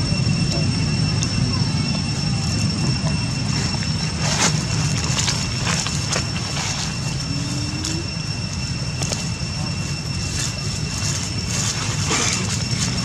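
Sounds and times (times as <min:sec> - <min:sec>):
high-pitched whine: 0:00.0 - 0:13.0
steady low rumble: 0:00.0 - 0:13.0
dry leaves crackling: 0:03.4 - 0:13.0.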